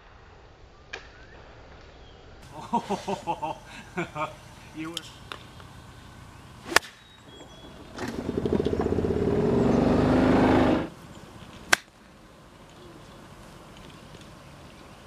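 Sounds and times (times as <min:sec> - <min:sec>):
sharp cracks: 0:06.6 - 0:07.1, 0:11.5 - 0:12.1
vehicle engine revving: 0:07.4 - 0:10.9.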